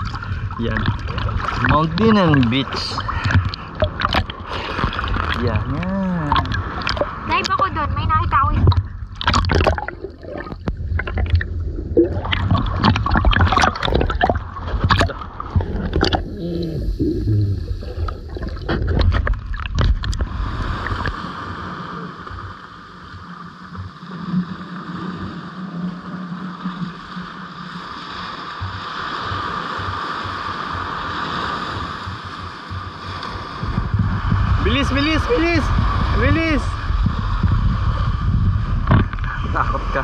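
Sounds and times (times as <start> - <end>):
seawater splashing and sloshing: 0.0 - 40.0
knocks and rumbles: 12.2 - 16.3, 38.8 - 39.3.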